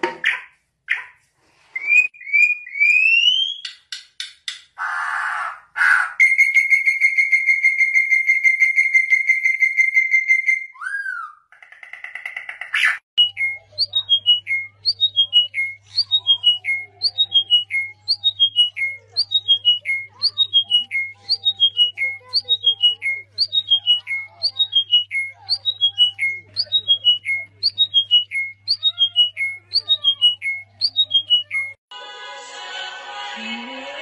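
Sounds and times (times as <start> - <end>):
songbirds whistling and calling: 12.8 - 31.8.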